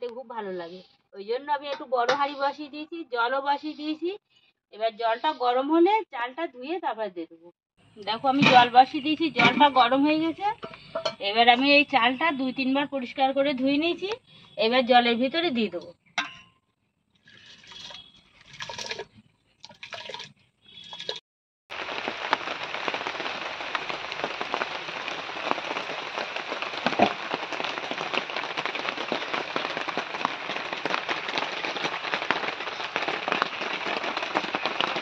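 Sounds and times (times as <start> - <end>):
steady rain falling: 21.7 - 35.0.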